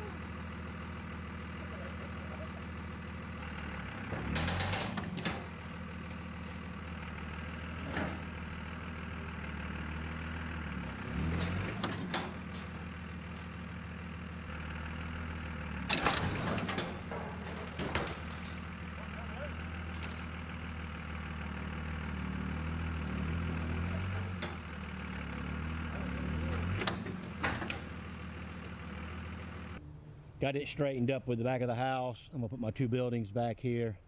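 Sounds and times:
diesel engine running: 0.0 - 31.5.

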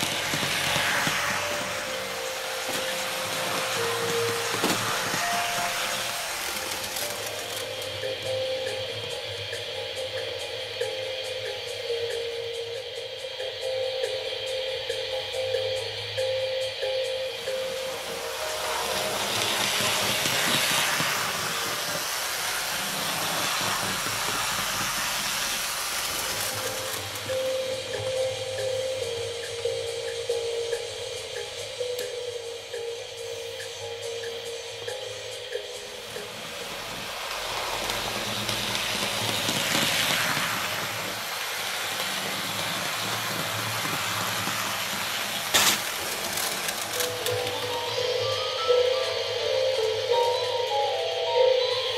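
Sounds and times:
model trains rattling on track: 0.0 - 8.8, 17.4 - 28.7, 35.5 - 48.0.

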